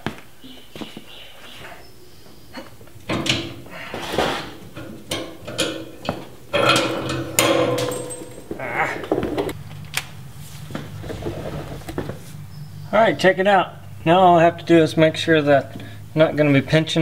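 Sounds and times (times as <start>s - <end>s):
metal tank knocking and scraping: 2.9s - 9.6s.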